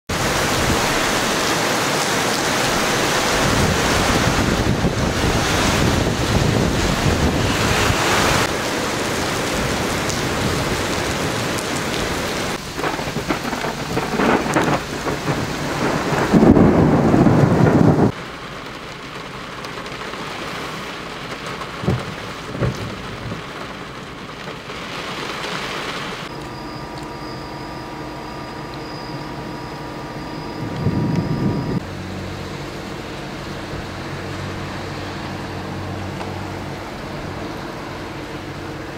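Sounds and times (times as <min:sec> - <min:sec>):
thunder rumbling: 0:00.1 - 0:18.2, 0:21.6 - 0:24.0, 0:26.2 - 0:31.8
heavy rain: 0:00.1 - 0:38.9
wind: 0:00.1 - 0:38.9.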